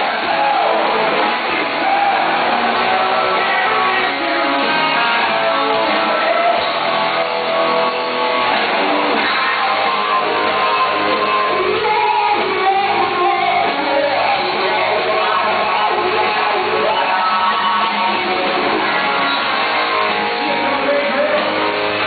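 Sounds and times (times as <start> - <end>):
person singing: 0.0 - 7.9, 9.1 - 22.0
electric guitar: 0.0 - 22.0
live rock band playing: 0.0 - 22.0.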